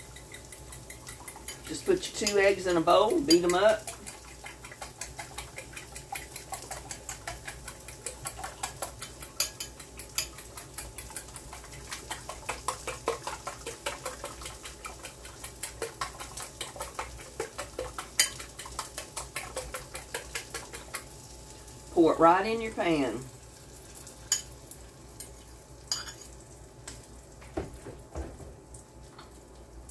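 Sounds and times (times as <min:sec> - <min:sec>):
whisk clicking against bowl: 0:00.0 - 0:21.1.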